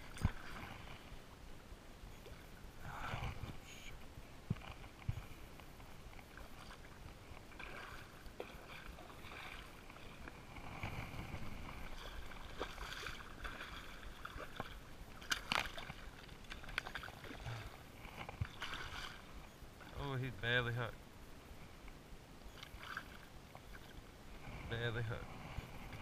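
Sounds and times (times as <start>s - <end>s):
water splashing and sloshing: 0.0s - 20.3s, 22.5s - 26.0s.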